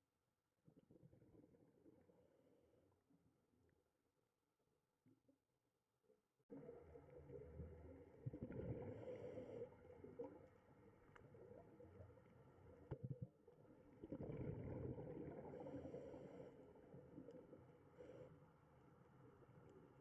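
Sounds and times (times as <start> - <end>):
aquarium water gurgling: 6.5 - 16.0.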